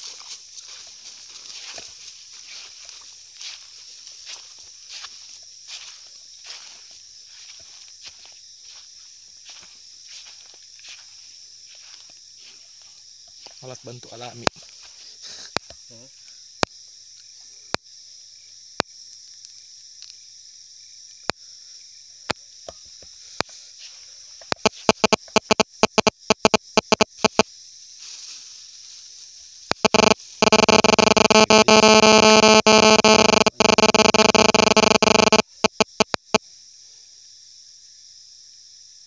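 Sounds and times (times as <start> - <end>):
high insect chorus: 0.0 - 32.8, 35.4 - 39.0
sharp clicks: 24.5 - 27.4, 29.7 - 36.4
loud harsh buzzing: 29.8 - 36.1.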